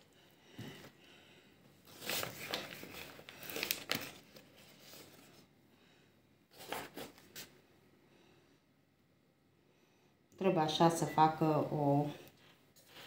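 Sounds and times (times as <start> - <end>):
paper bag rustling: 1.8 - 5.4.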